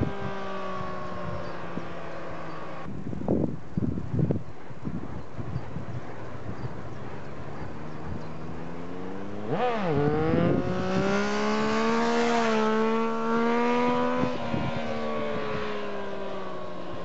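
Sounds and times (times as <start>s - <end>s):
engine revving: 7.9s - 16.7s.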